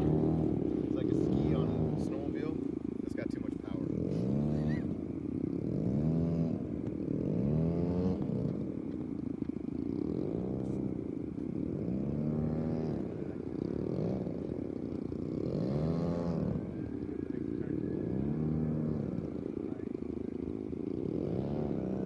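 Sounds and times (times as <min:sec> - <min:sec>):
model plane engines running: 0:00.0 - 0:22.0.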